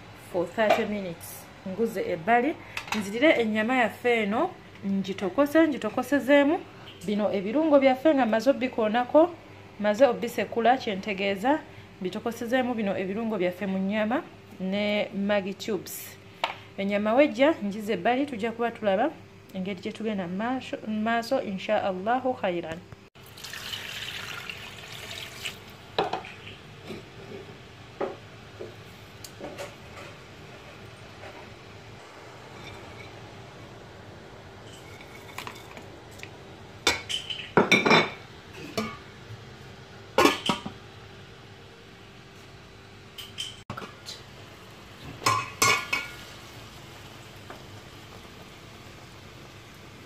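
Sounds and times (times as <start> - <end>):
water pouring into a metal pot: 23.2 - 25.7.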